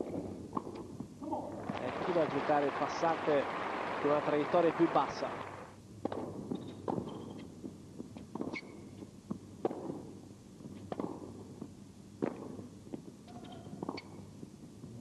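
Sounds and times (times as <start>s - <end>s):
tennis ball bouncing: 6.0s - 7.5s, 8.2s - 12.6s, 13.7s - 14.2s.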